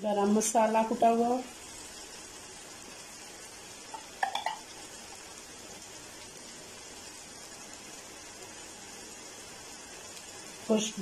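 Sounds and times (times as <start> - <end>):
liver sizzling in frying pan: 0.0 - 11.0
spoon clinking against pan: 4.0 - 4.6.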